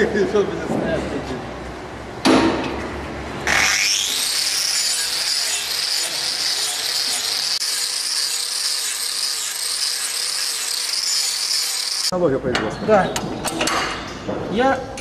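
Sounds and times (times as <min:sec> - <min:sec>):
angle grinder whining: 0:03.4 - 0:12.1
disc grinding hoof: 0:03.5 - 0:12.1.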